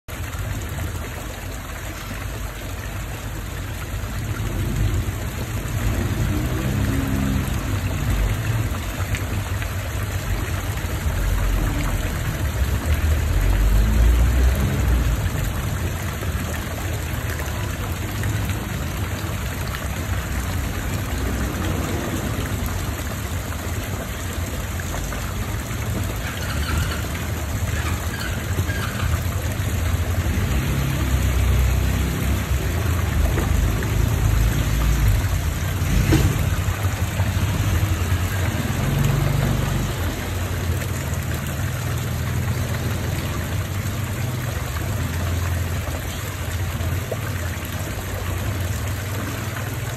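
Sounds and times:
water rushing and splashing: 0.0 - 49.9.

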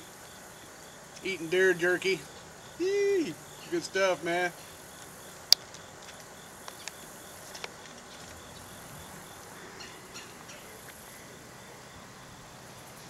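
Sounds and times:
insects chirping: 0.0 - 13.0
outdoor hiss: 0.0 - 13.0.

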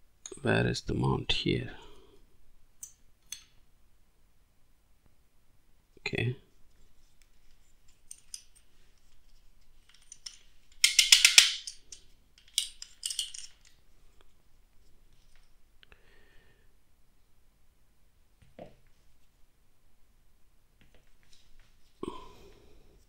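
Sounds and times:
hard plastic parts clicking: 9.8 - 13.8.

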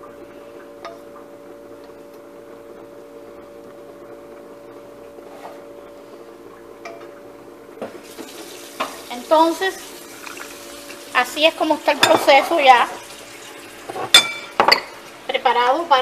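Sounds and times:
kitchen appliance motor humming: 7.7 - 16.0.

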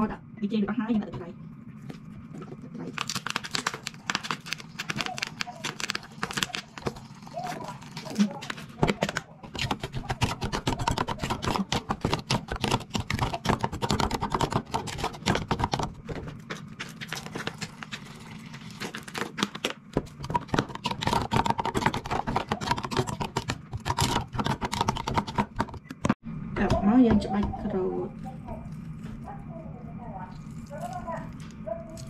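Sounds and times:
spoon scraping plastic bowl: 1.8 - 26.2.

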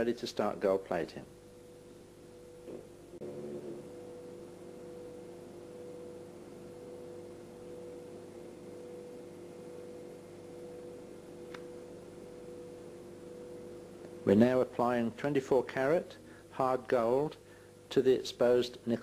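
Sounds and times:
two-tone hum: 1.2 - 18.1
faint click: 11.5 - 11.7.

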